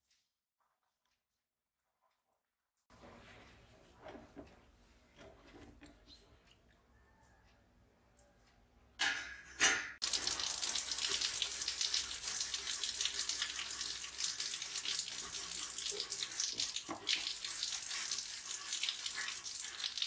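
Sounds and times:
hose water splashing on metal: 9.0s - 20.0s.

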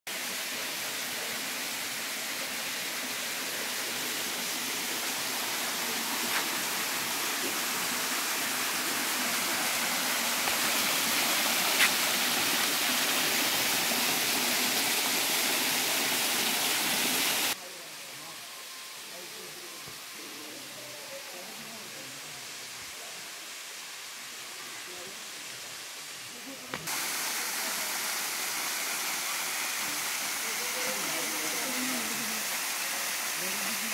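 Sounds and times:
water rushing over rocks: 0.1s - 17.6s.

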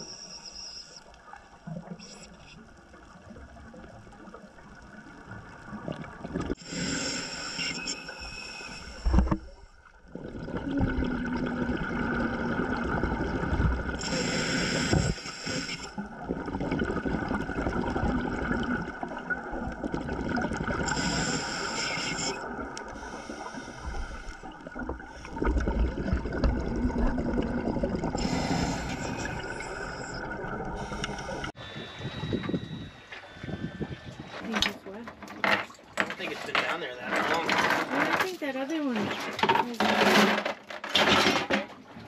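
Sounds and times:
regulator inhalation hiss: 6.6s - 9.3s, 14.0s - 16.0s, 20.8s - 24.5s, 28.2s - 30.2s, 30.8s - 34.2s
bubbling exhalations: 10.1s - 14.2s, 16.0s - 21.4s, 22.2s - 31.6s.

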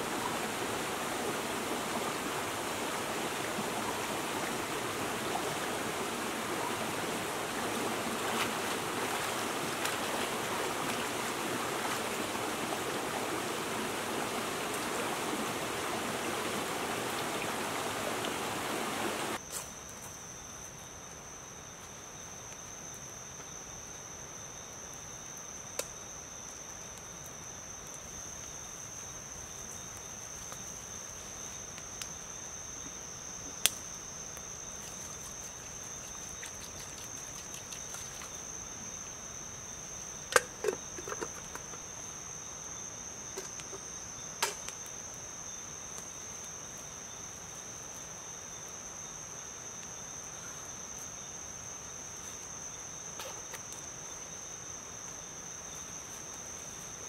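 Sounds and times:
crickets chirring: 0.0s - 57.0s.

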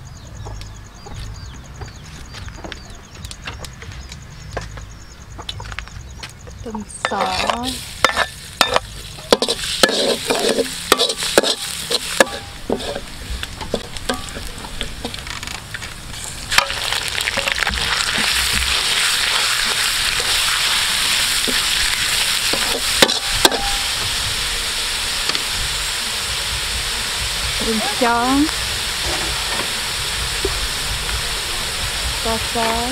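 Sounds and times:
spatula scraping and knocking pan: 7.0s - 15.3s, 16.5s - 24.1s, 29.0s - 29.8s
garlic sizzling in hot oil: 7.0s - 32.9s
meat frying loudly: 7.2s - 32.9s.

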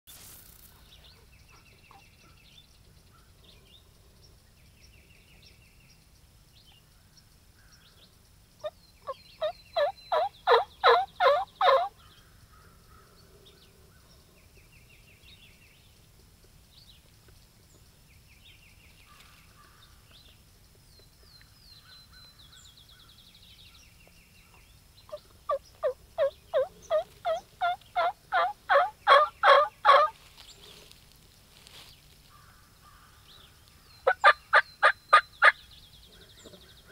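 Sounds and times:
faint songbird chirps: 0.4s - 36.9s
turkey yelping: 9.4s - 11.9s, 25.2s - 30.1s, 34.1s - 35.6s.

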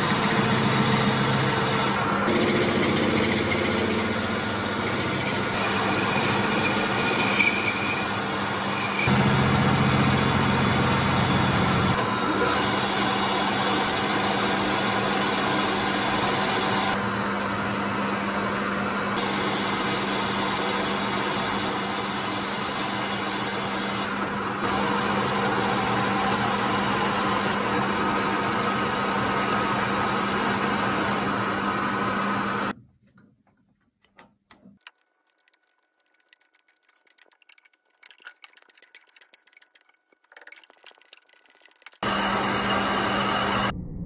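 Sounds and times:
metal lathe humming: 0.0s - 17.0s
faint clicks and taps: 33.0s - 42.0s.

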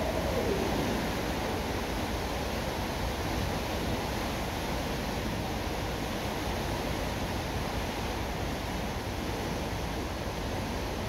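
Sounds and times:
water rushing: 0.0s - 5.4s.

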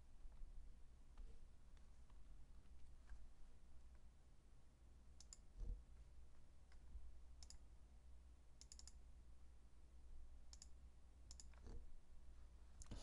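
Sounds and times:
low steady hum: 0.0s - 13.0s
computer mouse clicking: 5.2s - 5.6s, 7.4s - 7.6s, 8.6s - 9.0s, 10.5s - 11.8s.

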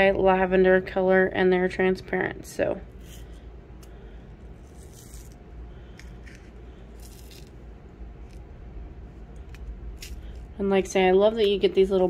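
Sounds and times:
low steady hum: 0.0s - 12.0s
beads trickling into plastic tube: 4.6s - 7.6s.

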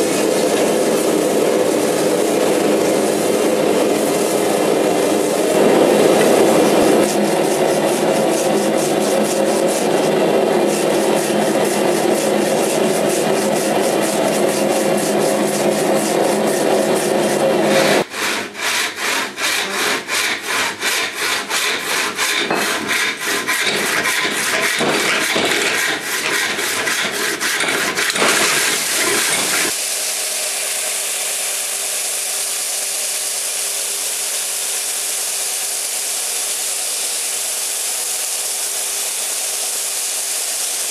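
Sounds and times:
belt grinder running: 0.0s - 29.8s
hand saw cutting wood: 0.0s - 29.8s
wire brush scrubbing steel: 0.0s - 29.8s.

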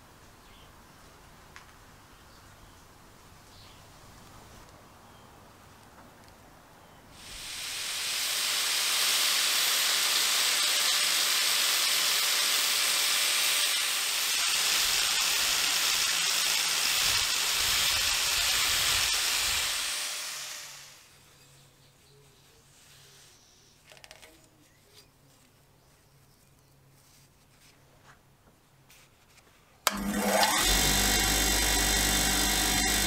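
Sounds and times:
angle grinder sanding metal: 7.2s - 21.0s, 29.9s - 33.0s.

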